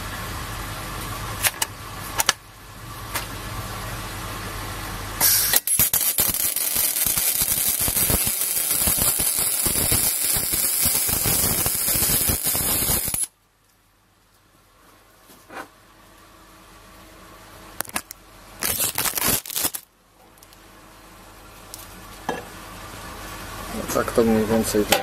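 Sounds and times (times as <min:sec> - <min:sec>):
welder hiss: 0:05.2 - 0:13.3
welding arc crackling: 0:05.2 - 0:13.3, 0:17.8 - 0:19.9.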